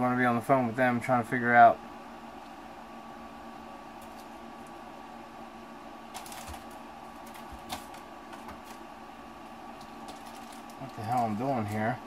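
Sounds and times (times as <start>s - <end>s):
steady background hum: 0.0s - 12.0s
plastic parts clicking and rustling: 6.2s - 8.8s, 9.8s - 11.8s.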